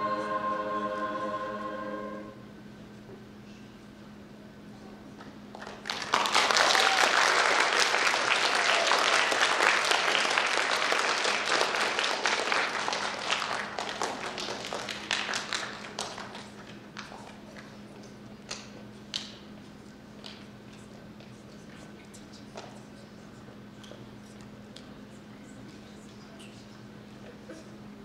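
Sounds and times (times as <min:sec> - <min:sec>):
audience applauding: 0:05.6 - 0:17.8.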